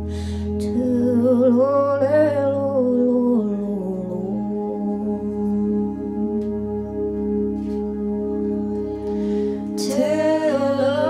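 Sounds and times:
person singing: 0.0s - 7.6s, 9.4s - 11.0s
steady held drone: 0.0s - 11.0s.

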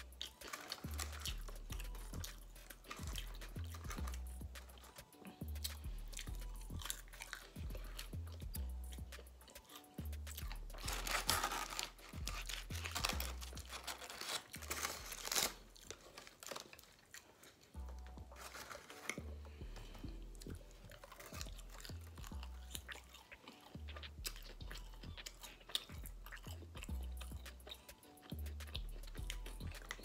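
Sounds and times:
background music with bass line: 0.0s - 15.8s, 17.8s - 30.0s
chewing and crunching fried food: 0.0s - 30.0s
paper liners rustling: 0.3s - 1.2s, 10.9s - 19.3s.

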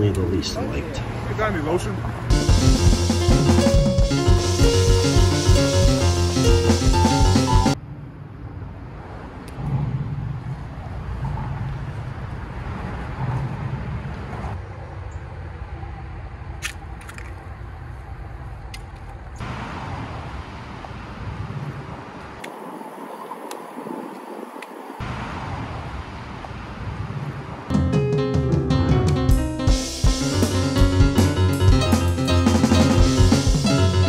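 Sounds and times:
distant road traffic rumble: 0.0s - 6.0s, 7.7s - 26.8s
steady hiss: 2.3s - 7.8s.

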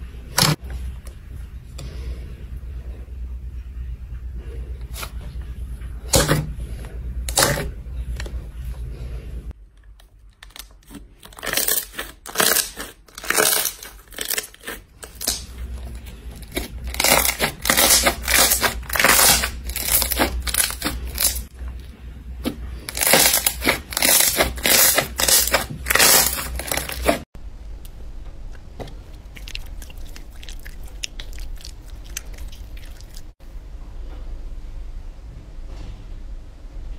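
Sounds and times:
slime squelching: 10.4s - 27.2s, 28.6s - 33.4s.

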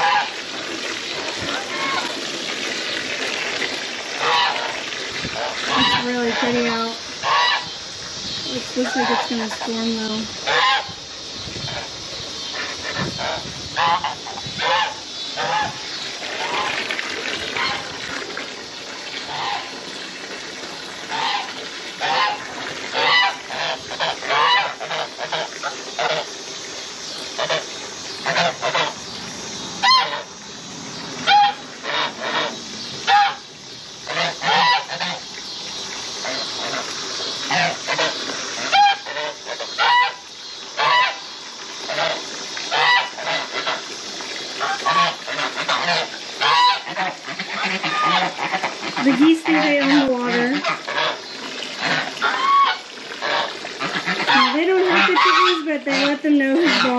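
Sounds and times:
geese honking: 0.0s - 0.5s, 1.1s - 2.3s, 4.2s - 7.8s, 8.5s - 11.0s, 11.7s - 16.8s, 17.5s - 18.0s, 19.2s - 19.9s, 21.1s - 26.3s, 27.4s - 29.0s, 29.8s - 30.3s, 31.2s - 33.5s, 34.1s - 35.3s, 36.2s - 41.3s, 41.9s - 43.9s, 44.6s - 56.9s.

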